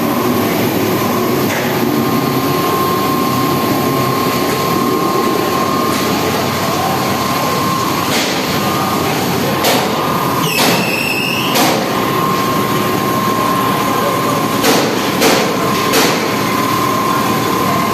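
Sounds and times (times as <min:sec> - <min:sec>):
constant high whine: 0:00.0 - 0:17.9
laundry machinery running: 0:00.0 - 0:17.9
short squeal: 0:10.4 - 0:11.6.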